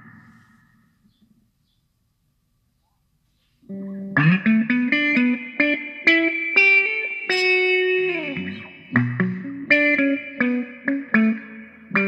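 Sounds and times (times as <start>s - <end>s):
electric guitar with wah effect: 0.0s - 0.8s, 3.6s - 12.0s.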